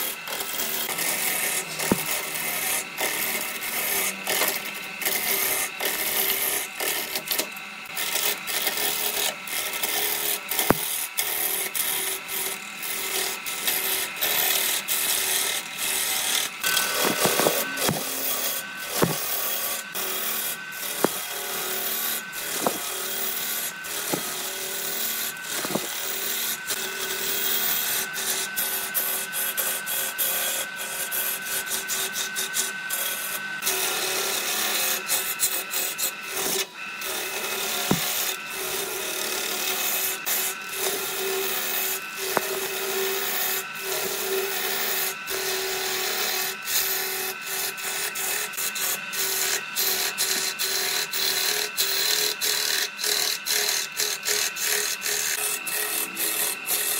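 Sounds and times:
lathe tool scraping wood: 0:00.0 - 0:56.9.

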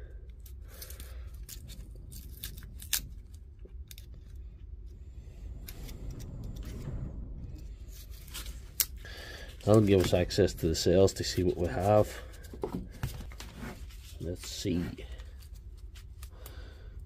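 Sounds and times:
insulation wrap clicking and snipping: 0:00.3 - 0:04.7.

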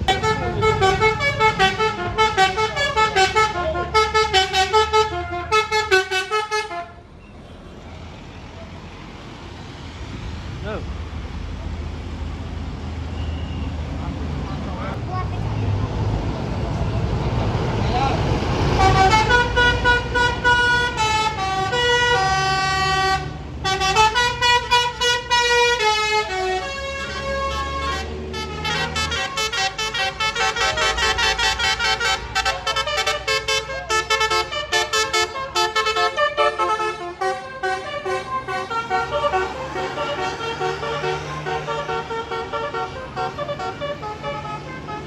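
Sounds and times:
multi-tone bus air horns: 0:00.0 - 0:07.2, 0:18.6 - 0:45.0
bus engines rumbling: 0:00.0 - 0:45.0.

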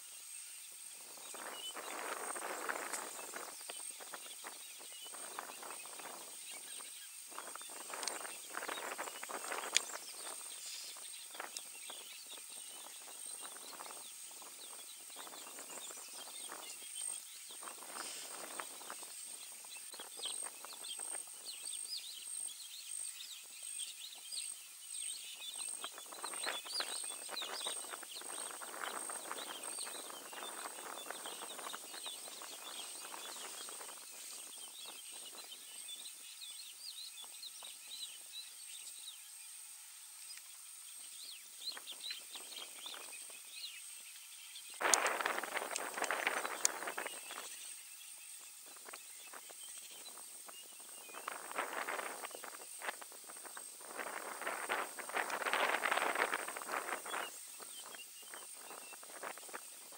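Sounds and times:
small birds chirping: 0:00.0 - 0:59.9
steady high-pitched whine: 0:00.0 - 0:59.9
rustling and crackling in brush: 0:44.8 - 0:59.9.

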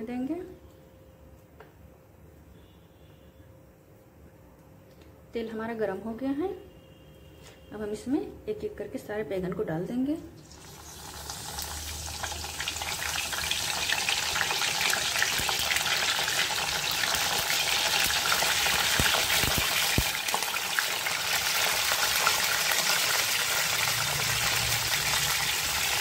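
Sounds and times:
vegetables sizzling in hot oil: 0:10.4 - 0:26.0.

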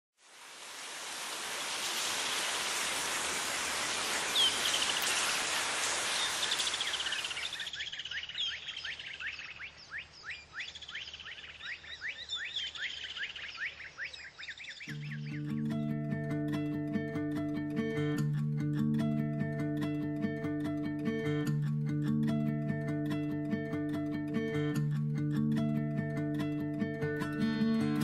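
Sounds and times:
stream water rushing: 0:00.2 - 0:07.8
birds chirping: 0:03.0 - 0:15.9.

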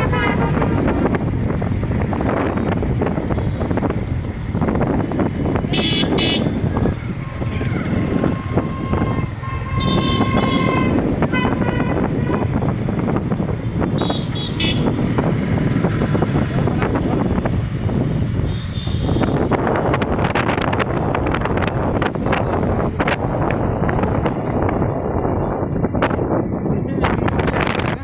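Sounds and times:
vehicle horns honking: 0:00.0 - 0:01.0, 0:05.7 - 0:06.6, 0:08.1 - 0:12.6, 0:13.9 - 0:15.1, 0:18.4 - 0:19.5
wind rumbling on microphone: 0:00.0 - 0:28.0.

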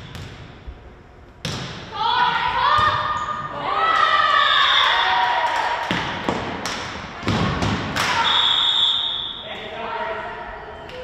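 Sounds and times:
referee's whistle blowing: 0:08.2 - 0:09.5.

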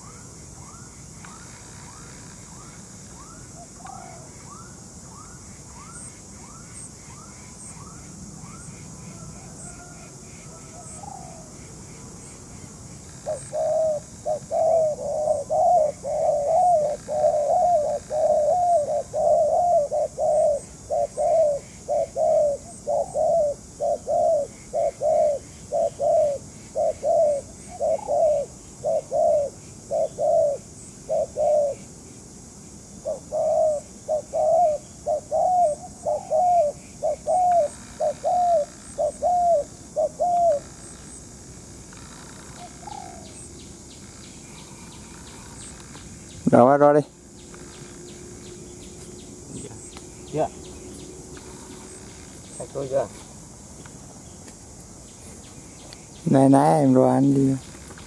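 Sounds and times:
dove cooing: 0:01.3 - 0:07.9, 0:08.5 - 0:11.6, 0:13.2 - 0:31.9, 0:33.0 - 0:41.2, 0:42.1 - 0:43.5.

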